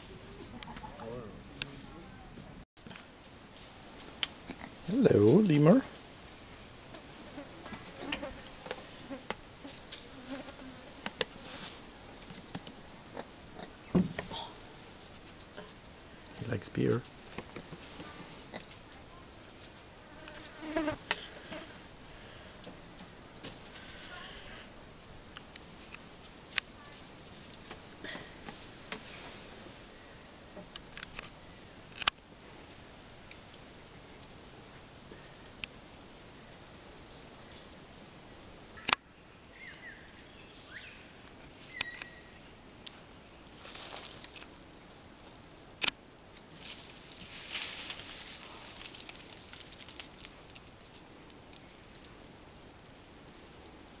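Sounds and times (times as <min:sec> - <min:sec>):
high-pitched insect chorus: 0:02.8 - 0:54.0
insect fast pulsing trill: 0:35.3 - 0:43.6.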